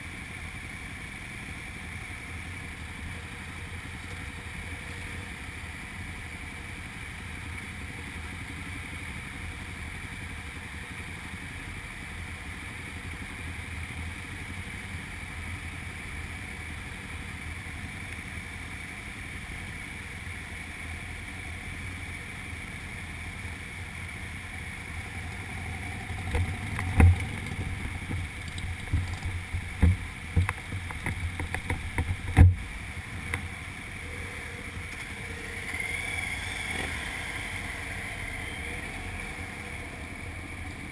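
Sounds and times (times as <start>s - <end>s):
muffled motorcycle engine: 0.0s - 40.9s
sharp knocks and thumps: 26.2s - 32.6s.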